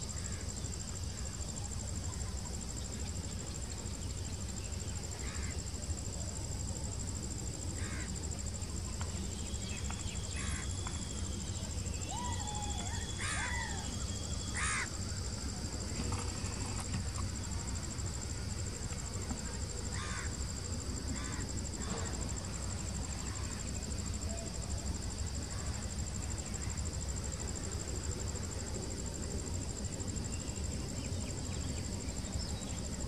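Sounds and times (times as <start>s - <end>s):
insects chirring: 0.0s - 33.0s.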